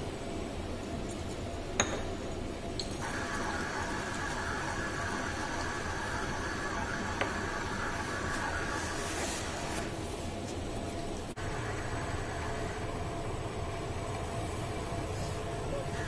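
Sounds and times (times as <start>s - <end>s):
pump humming: 3.0s - 10.0s, 11.4s - 16.0s.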